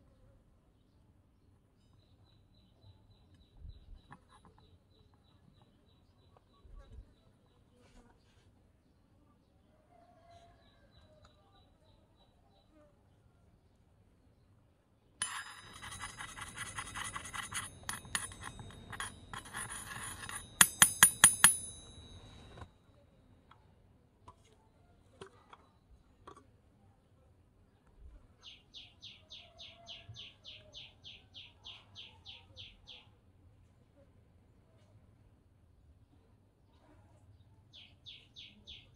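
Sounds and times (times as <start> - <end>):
metallic bell-like ringing rattle: 15.2 - 22.7.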